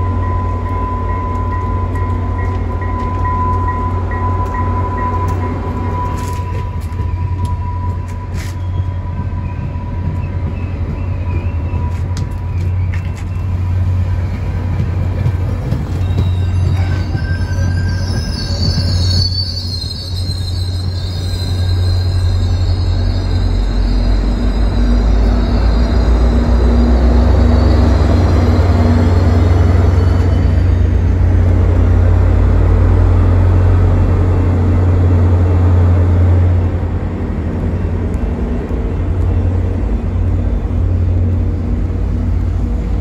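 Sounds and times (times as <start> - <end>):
train rolling past: 0.0 - 43.0
wheel squeal: 6.0 - 13.6, 15.6 - 31.0.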